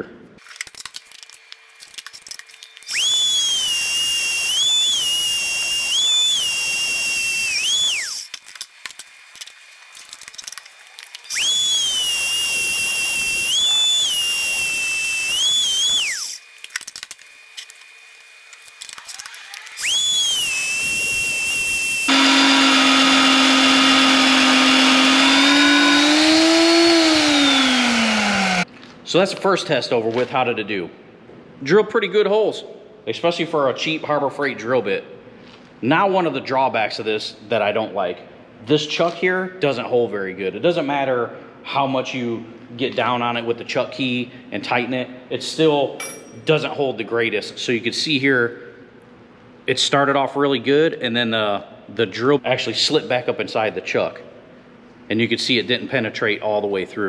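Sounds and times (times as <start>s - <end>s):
drill motor whining: 2.5s - 8.7s, 11.0s - 28.7s.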